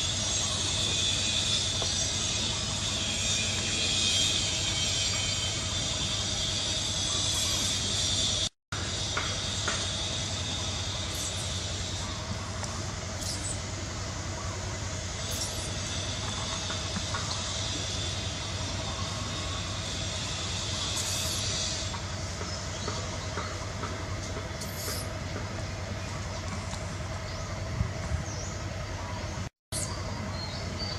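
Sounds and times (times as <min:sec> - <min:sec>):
high even buzz: 0:00.0 - 0:25.2
continuous hum: 0:00.0 - 0:30.9.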